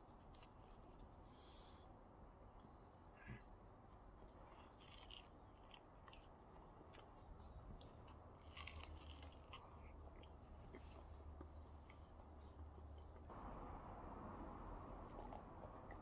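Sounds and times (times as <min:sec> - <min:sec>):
person chewing and crunching: 0:04.3 - 0:13.2.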